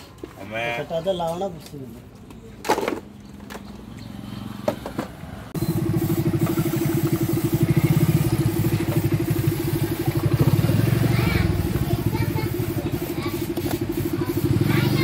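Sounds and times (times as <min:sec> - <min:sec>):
small engine running: 0:05.6 - 0:15.0.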